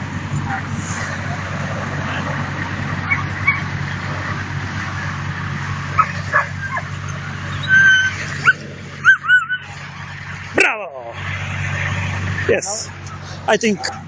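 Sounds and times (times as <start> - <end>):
puppies yipping: 2.2 - 4.4, 5.9 - 10.1, 13.0 - 14.0
puppy whining: 6.0 - 9.7.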